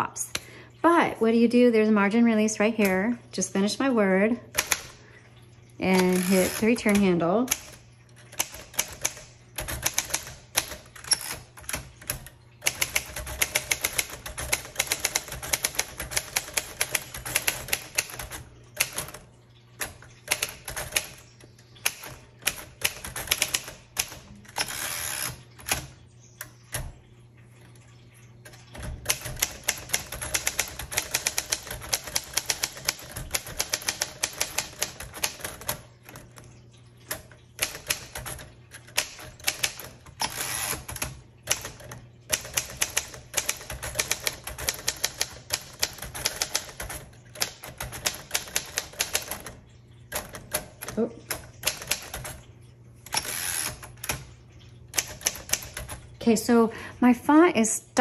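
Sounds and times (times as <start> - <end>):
manual typewriter typing: 4.5 - 5.0, 5.8 - 27.0, 27.8 - 56.3.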